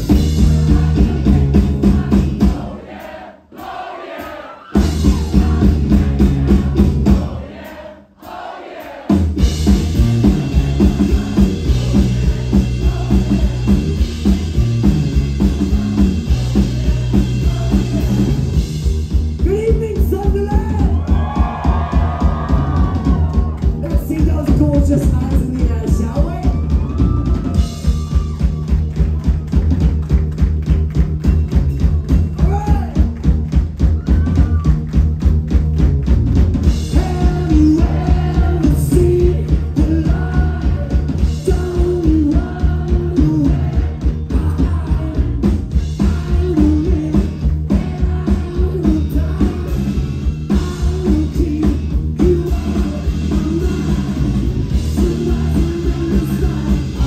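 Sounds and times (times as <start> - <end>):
bass guitar: 0.0 - 2.8, 4.8 - 7.5, 9.1 - 57.0
drum kit beat: 0.0 - 57.0
person singing: 15.4 - 18.4, 36.9 - 57.0.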